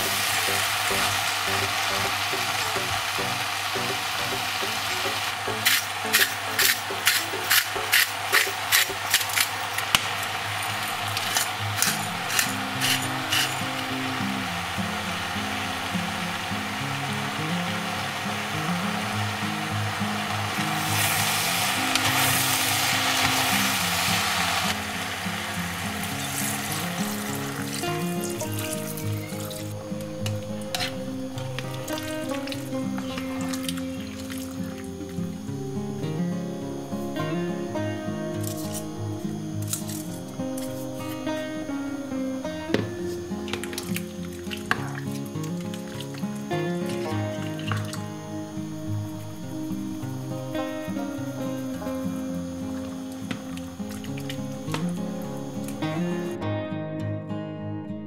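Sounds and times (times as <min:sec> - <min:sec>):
soft background music: 0:00.0 - 0:10.0, 0:10.6 - 0:58.0
vegetables sizzling in a pan: 0:00.0 - 0:36.0, 0:36.7 - 0:56.4
spoon stirring in a pot: 0:05.5 - 0:13.8.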